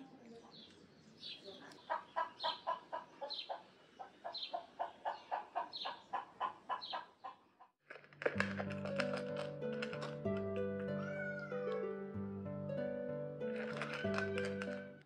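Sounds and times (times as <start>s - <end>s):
hen clucking: 1.8s - 7.5s.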